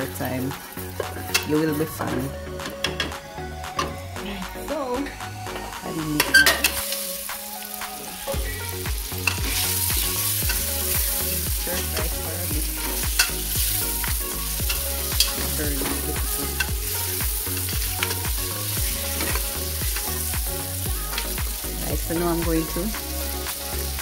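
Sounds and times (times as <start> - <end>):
meat sizzling in hot oil: 0.0 - 2.0, 5.6 - 24.0.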